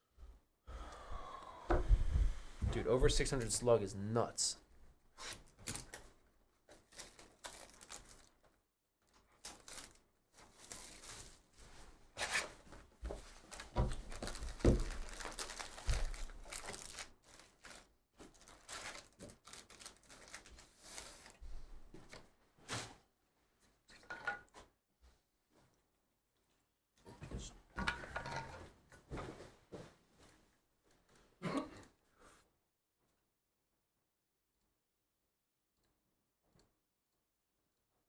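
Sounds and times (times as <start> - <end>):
cardboard and wrapper tearing: 5.2 - 6.0, 6.7 - 8.4, 9.4 - 11.4, 13.5 - 21.4
foil packs crinkling: 6.7 - 8.4, 9.3 - 11.5, 13.4 - 21.4.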